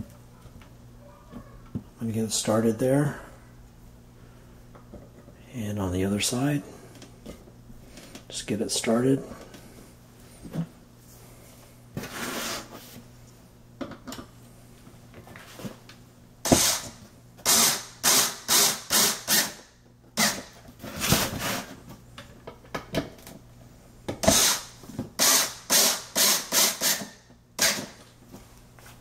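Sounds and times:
electric screwdriver driving screws: 16.5 - 19.6, 20.2 - 20.5, 24.2 - 28.0.

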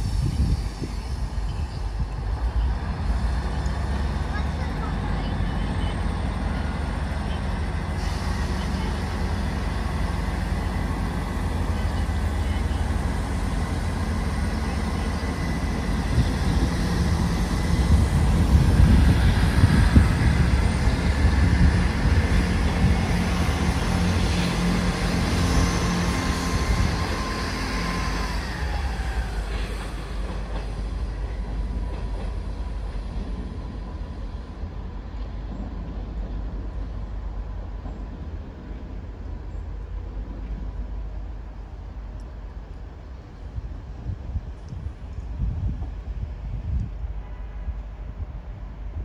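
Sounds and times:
train engine rumble with whine: 0.0 - 49.0.

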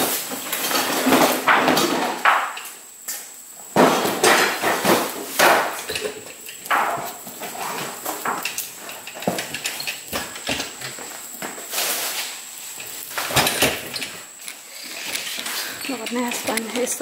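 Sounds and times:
hand truck wheels rumbling on concrete: 14.9 - 17.0.

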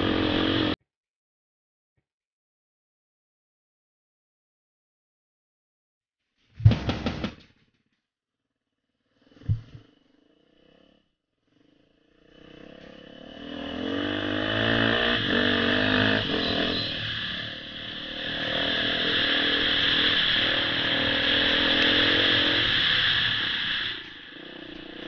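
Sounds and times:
dirt bike engine running: 0.0 - 0.8, 11.5 - 25.0.

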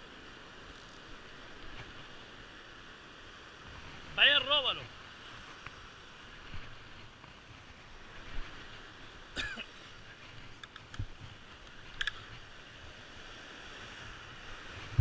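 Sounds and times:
surf washing: 0.0 - 15.0
cough-like sound: 9.4 - 9.7
wind on microphone: 13.9 - 15.0.

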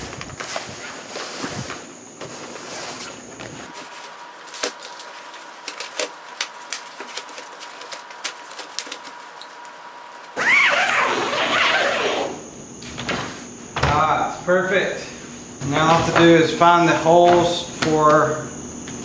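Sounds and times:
zipper pulled shut: 10.4 - 12.4.

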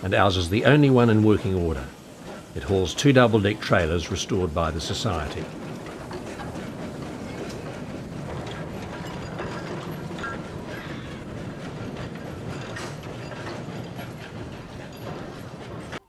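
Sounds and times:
iron wheels on rails: 0.0 - 16.0.

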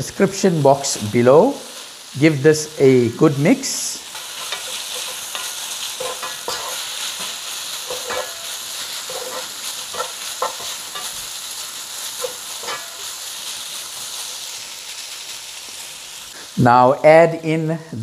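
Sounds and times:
chicken sizzling in frying pan: 0.0 - 17.7
wooden spoon scraping pan: 4.2 - 11.2, 12.2 - 13.0.

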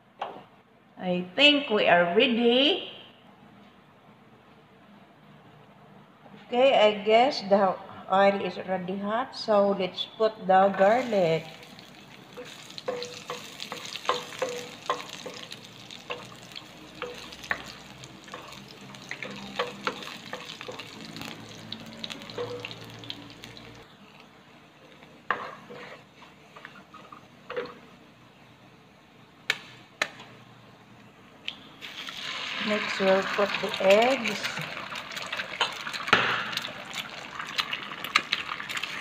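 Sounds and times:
garlic sizzling in oil: 10.8 - 23.9, 31.8 - 39.0
wooden spatula scraping pan: 25.3 - 27.2.

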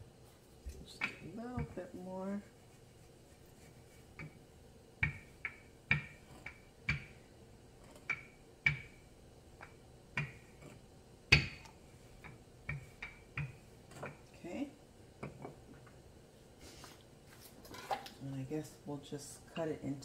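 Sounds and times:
rolling pin knocking on countertop: 1.0 - 1.8, 5.0 - 7.2, 8.0 - 9.0, 9.6 - 14.2.

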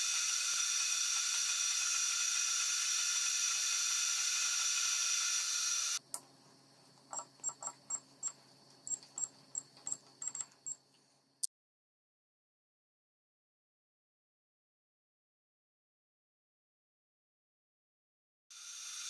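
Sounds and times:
keypad beeps: 7.1 - 9.3, 9.9 - 10.8.

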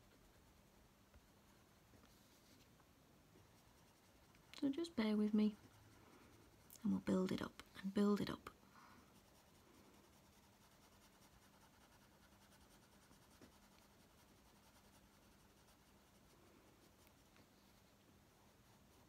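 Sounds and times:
faint low hum: 0.0 - 19.0
pencil scratching on paper: 3.5 - 7.4, 9.1 - 17.4.

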